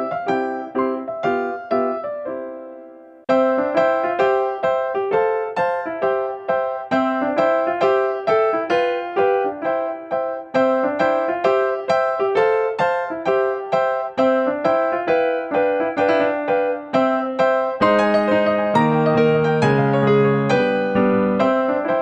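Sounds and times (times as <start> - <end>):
gentle piano melody: 0.0 - 22.0.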